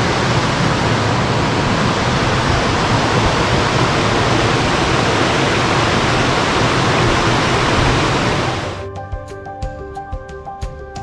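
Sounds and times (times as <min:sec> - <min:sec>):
creek and waterfall rushing: 0:00.0 - 0:08.8.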